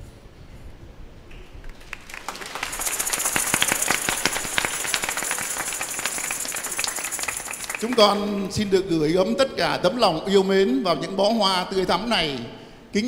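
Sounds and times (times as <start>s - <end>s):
congregation applauding: 1.6s - 9.3s.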